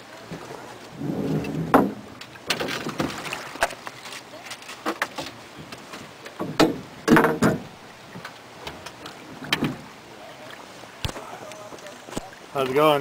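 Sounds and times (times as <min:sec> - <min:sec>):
oars knocking in oarlocks: 0:04.6 - 0:07.7.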